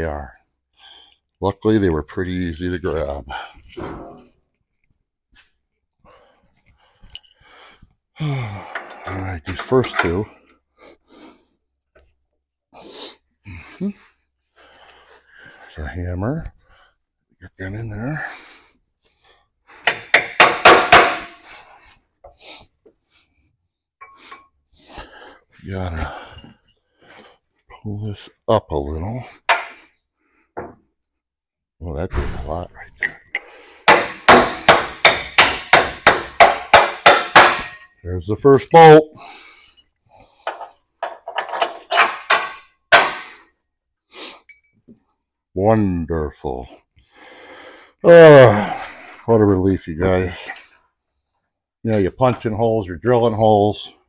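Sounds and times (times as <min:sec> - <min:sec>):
faint metal knocks and clinks: 0:06.6 - 0:07.4, 0:26.0 - 0:27.6, 0:39.6 - 0:42.8, 0:44.4 - 0:45.1
metal clanks and knocks: 0:08.7 - 0:10.3, 0:19.9 - 0:21.5, 0:32.9 - 0:38.0, 0:40.5 - 0:43.3.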